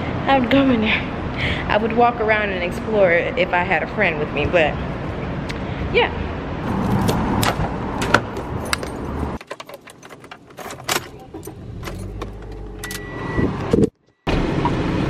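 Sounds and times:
car keys jangling in lock: 0:06.8 - 0:13.1
keys jangling in ignition: 0:08.0 - 0:13.1.

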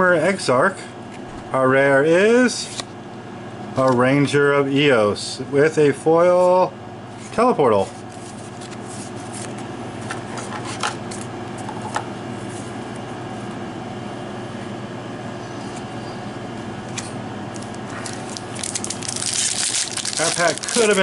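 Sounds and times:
room hum: 0:00.0 - 0:21.0
foil pack crinkling: 0:17.5 - 0:21.0.

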